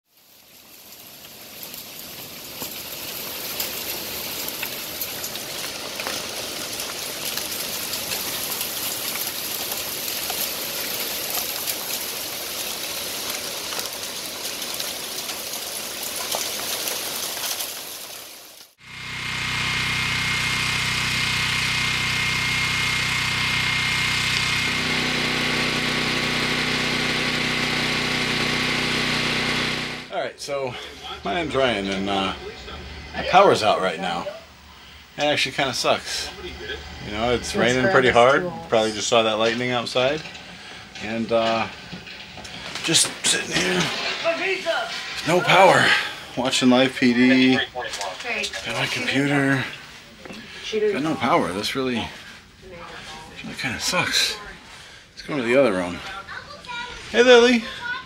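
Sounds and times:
heavy rain falling: 0.1 - 34.2, 38.8 - 50.0, 53.0 - 54.5
portable generator engine running: 18.8 - 38.7
thin high whine: 18.8 - 38.8.

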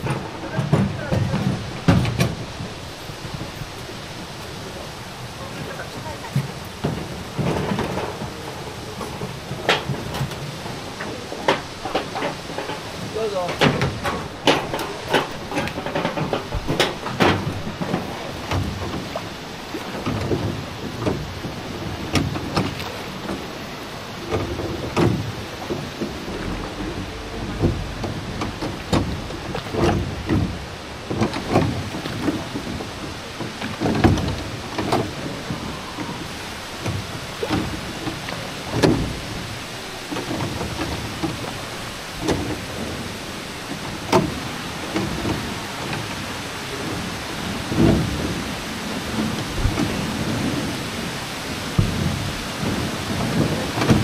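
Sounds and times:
oars knocking on wooden boat: 0.0 - 54.0
rushing water: 0.0 - 54.0.

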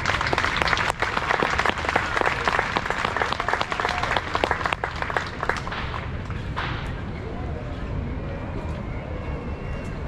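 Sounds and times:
crowd applauding: 0.0 - 6.2.

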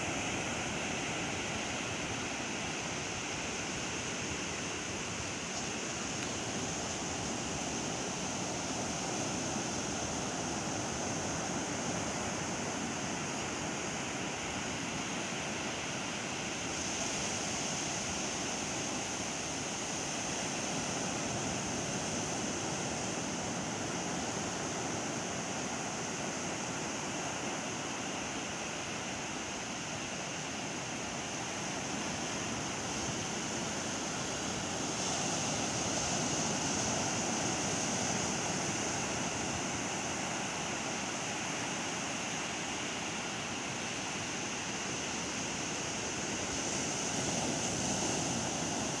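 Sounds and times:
ocean surf on sandy beach: 0.0 - 49.0.

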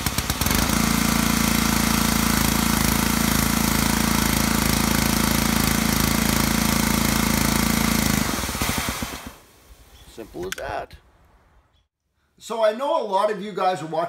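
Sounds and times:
small gas engine running: 0.0 - 9.4.

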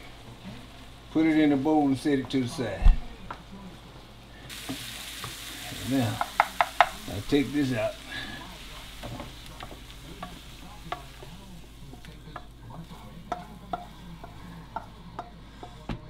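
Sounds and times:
faint sizzle: 0.0 - 16.0
wooden spoon scraping and tapping skillet: 4.4 - 16.0.

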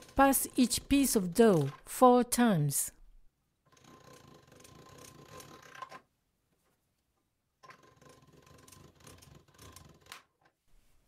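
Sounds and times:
pasta machine gears ticking: 0.0 - 2.0, 3.6 - 6.0, 7.6 - 10.3.

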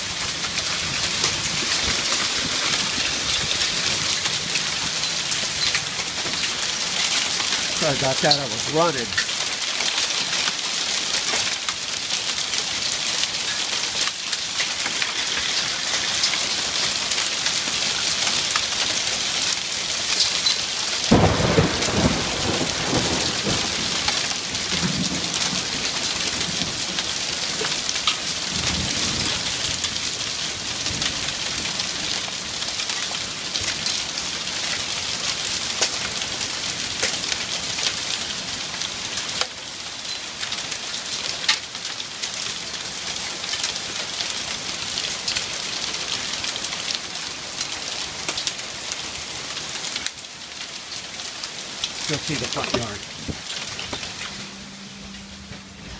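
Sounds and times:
hail and heavy rain on wood: 0.0 - 55.2
thunder rumbling: 21.1 - 25.9.

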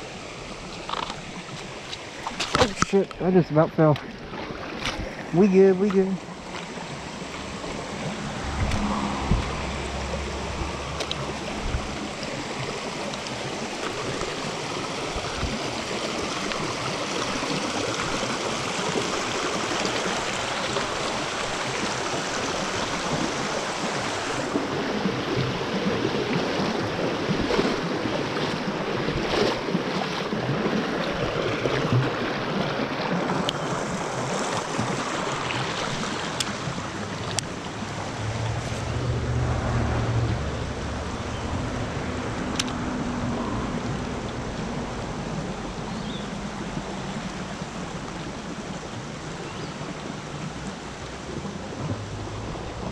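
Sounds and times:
creek water rushing over rocks: 0.0 - 52.9.

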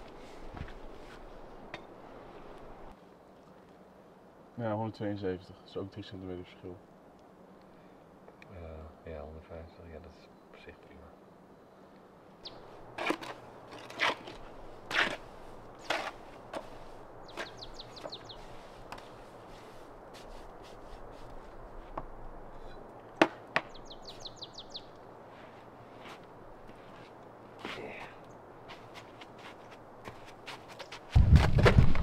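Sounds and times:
small bird trilling: 23.7 - 24.9.

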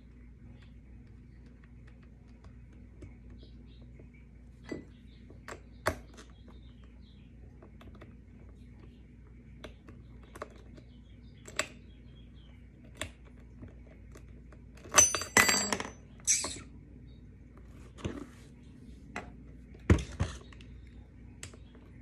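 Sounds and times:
metal clinking with ringing: 14.9 - 16.5.

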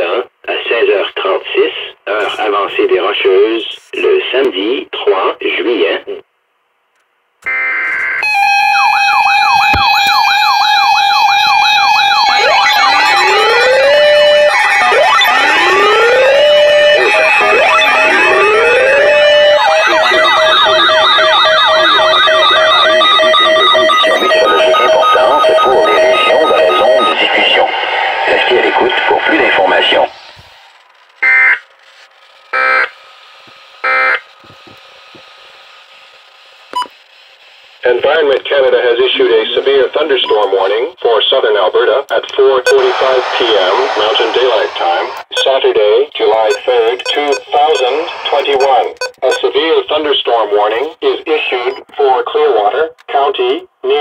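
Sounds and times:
siren sweeps: 7.5 - 31.7, 42.6 - 45.6, 46.4 - 49.5
data tones burst: 16.9 - 31.7, 42.6 - 49.6
short beep: 42.7 - 44.1, 46.5 - 49.5
harsh data bursts: 46.2 - 49.6
steady alert tones: 46.4 - 49.5.

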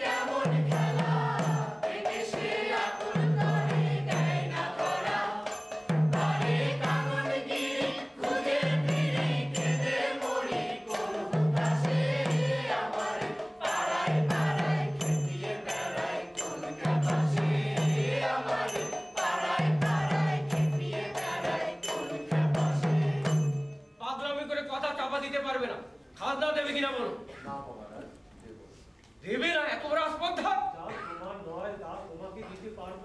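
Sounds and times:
hand-played barrel drum: 0.0 - 24.0
sharp percussion strikes: 0.0 - 24.4.

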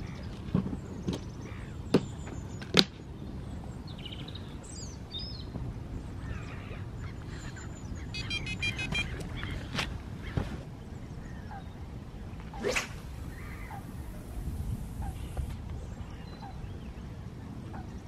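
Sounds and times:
wind rumble on microphone: 0.0 - 18.0
bird chirping: 6.3 - 9.6, 12.4 - 17.1.

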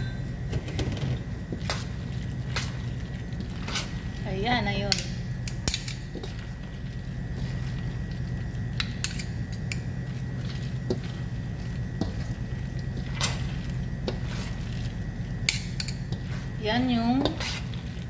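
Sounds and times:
low hum: 0.0 - 18.0
wet squishing of stirred salad: 1.5 - 4.4, 5.9 - 9.2, 10.0 - 18.0
spoons clicking against steel bowl: 4.9 - 6.1, 8.8 - 9.9, 15.4 - 16.2.

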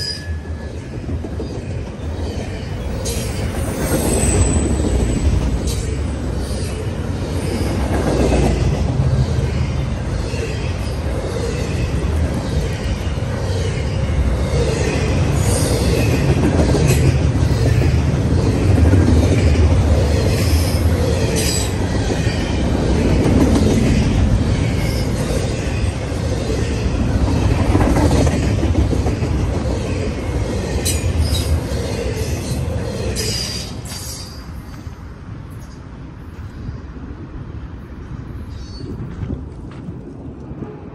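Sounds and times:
steel wheels rumbling on rail: 0.0 - 40.9
high wheel squeal: 2.4 - 7.8.

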